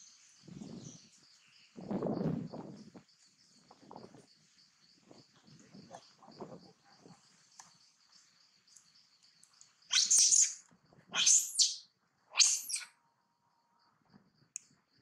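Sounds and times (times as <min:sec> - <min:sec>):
monkey screams: 0:09.9 - 0:10.5, 0:11.2 - 0:11.8, 0:12.4 - 0:12.8.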